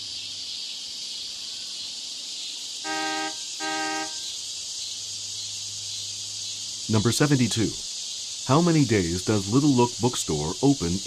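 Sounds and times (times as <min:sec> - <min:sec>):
high-pitched hiss: 0:00.0 - 0:11.0
car horn honking: 0:02.8 - 0:04.3.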